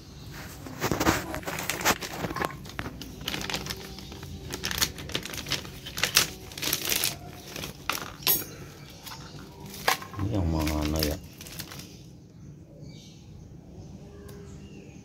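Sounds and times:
plastic packaging crinkling: 0:00.3 - 0:12.1.

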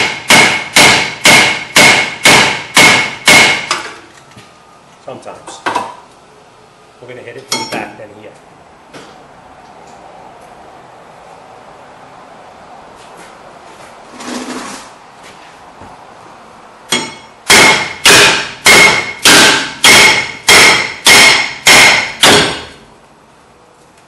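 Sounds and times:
hammer striking metal: 0:00.0 - 0:03.9, 0:07.5 - 0:08.0, 0:16.9 - 0:22.8.

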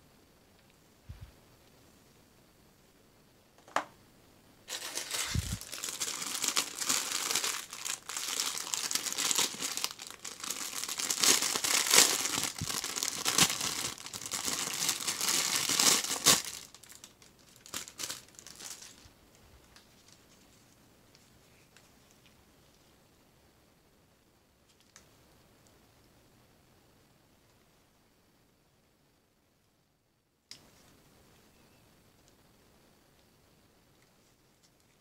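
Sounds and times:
plastic bag crinkling: 0:04.7 - 0:19.1
light rustles and ticks: 0:19.3 - 0:23.0, 0:33.1 - 0:35.0.

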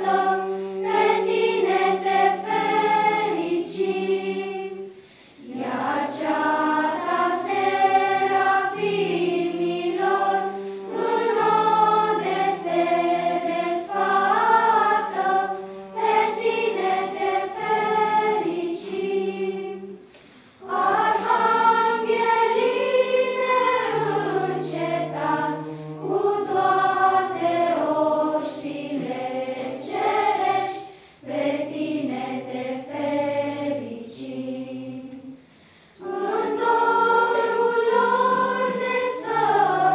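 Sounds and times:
children's choir singing: 0:00.0 - 0:39.9.

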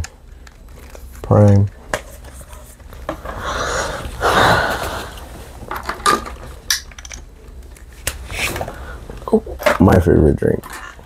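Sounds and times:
breathy rustling: 0:03.2 - 0:05.6.

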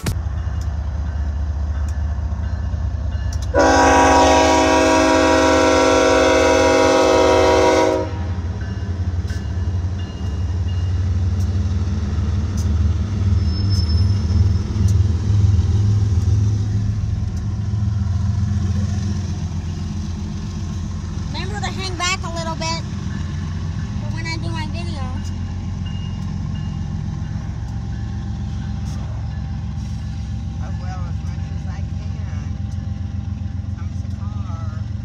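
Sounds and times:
diesel locomotive engine rumbling: 0:00.0 - 0:35.0
locomotive air horn chord: 0:03.5 - 0:08.4.

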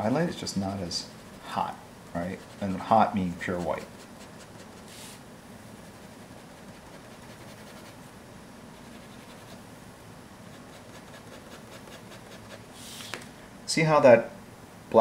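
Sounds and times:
low room hum: 0:00.0 - 0:15.0
marker scratching on paper: 0:02.3 - 0:05.2, 0:05.8 - 0:08.0, 0:08.8 - 0:09.6, 0:10.5 - 0:12.6.

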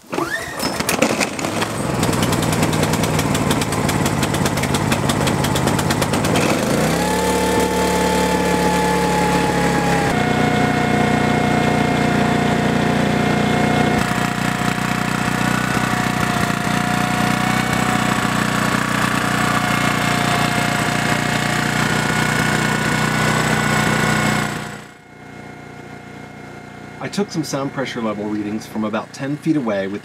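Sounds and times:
generator engine running: 0:00.8 - 0:30.0.

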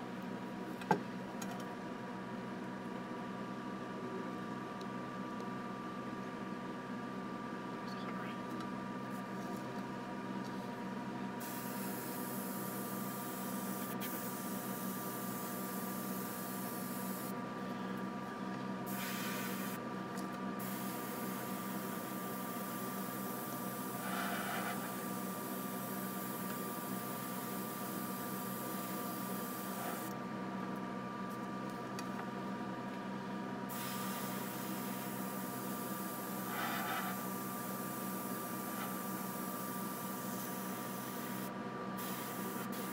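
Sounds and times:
steady low hum: 0:00.0 - 0:42.9
airbrush hissing: 0:18.9 - 0:19.8, 0:20.6 - 0:25.4, 0:33.7 - 0:42.9.

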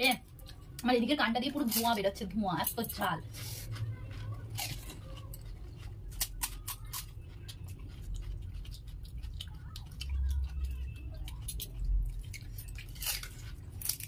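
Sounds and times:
crisp shells crackling and crunching: 0:03.6 - 0:14.0.

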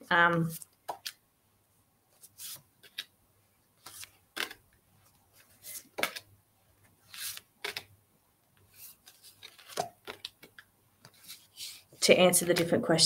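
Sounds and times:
cards sliding off a deck: 0:03.8 - 0:04.6, 0:07.1 - 0:07.9, 0:08.8 - 0:11.8.

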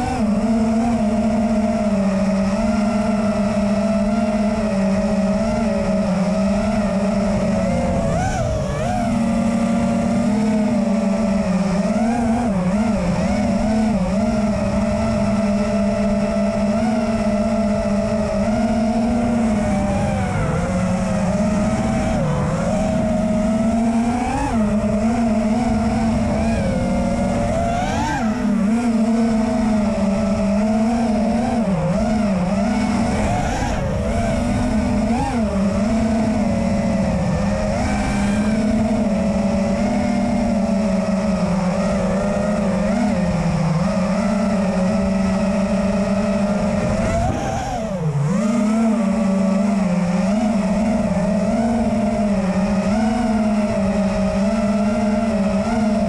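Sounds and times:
drone motors humming: 0:00.0 - 0:56.0.

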